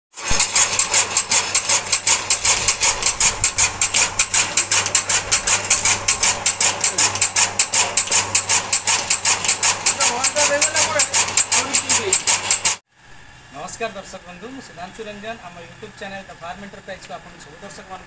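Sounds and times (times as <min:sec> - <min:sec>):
chaff cutter clacking: 0:00.2 - 0:12.8
electric motor hum: 0:00.2 - 0:18.0.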